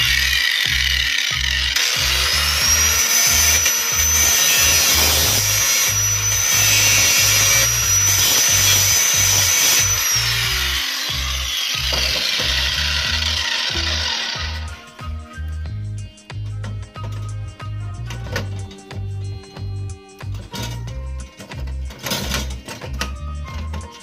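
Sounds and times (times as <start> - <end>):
angle grinder grinding metal: 0.0 - 15.2, 16.8 - 24.0
background music with low beat: 0.0 - 24.0.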